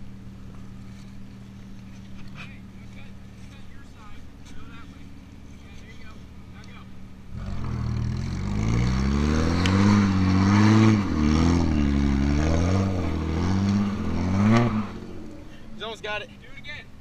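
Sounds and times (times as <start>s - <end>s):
car engine revving hard: 7.3s - 15.5s.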